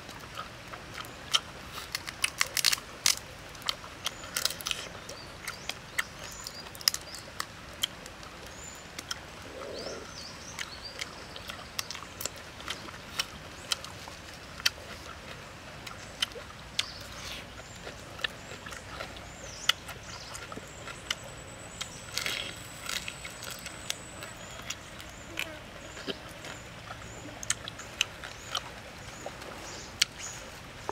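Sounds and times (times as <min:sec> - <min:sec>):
prawn shells cracking: 0:01.9 - 0:03.2
faint bird chirps: 0:08.5 - 0:12.8.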